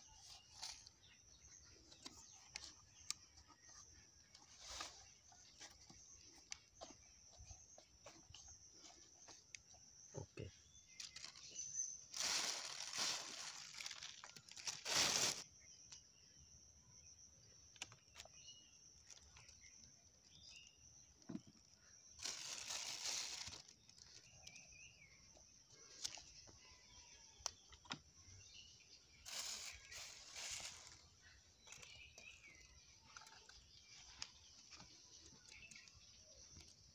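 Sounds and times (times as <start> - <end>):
plastic bag rustling: 11.0 - 15.4, 22.2 - 24.3, 29.2 - 31.2.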